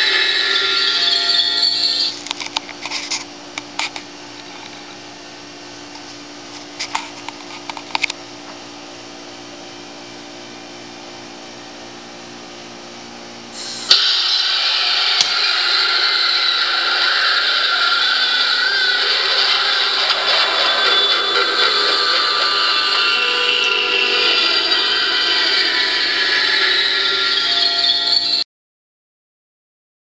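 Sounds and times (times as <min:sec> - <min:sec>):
faint hum: 0:00.0 - 0:28.4
motor mechanical noise: 0:12.0 - 0:28.4.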